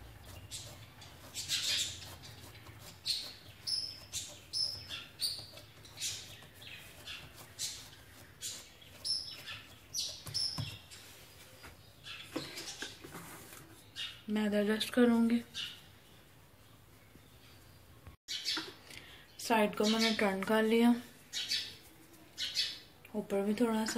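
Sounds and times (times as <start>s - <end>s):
palms patting dough: 0.0s - 11.8s.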